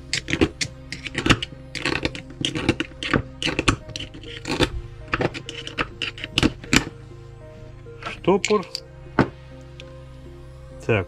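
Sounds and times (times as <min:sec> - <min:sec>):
metal parts and tools clinking: 0:00.0 - 0:06.9, 0:08.0 - 0:09.9
background music: 0:00.0 - 0:11.0.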